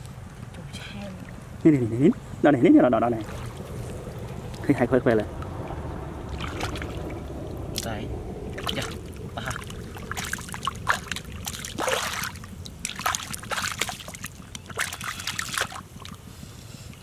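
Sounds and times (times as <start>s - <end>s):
hands splashing in muddy water: 8.6s - 16.2s.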